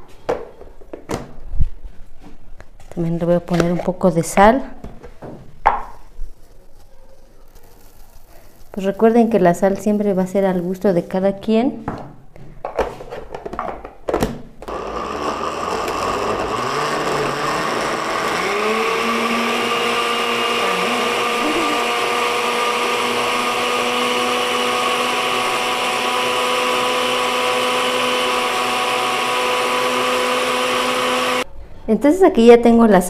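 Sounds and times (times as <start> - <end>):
blender motor running: 14.6 - 31.5.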